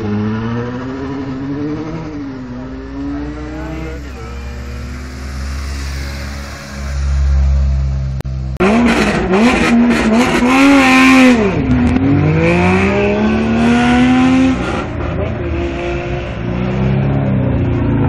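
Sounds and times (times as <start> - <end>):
rally car engine revving away: 8.6 - 18.0.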